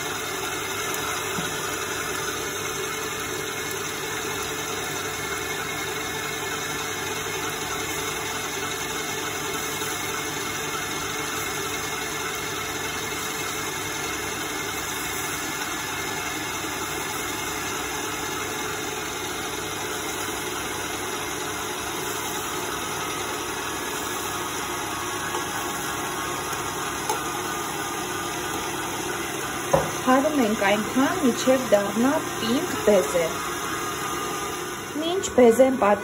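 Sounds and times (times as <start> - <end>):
stand mixer whisking: 0.0 - 36.0.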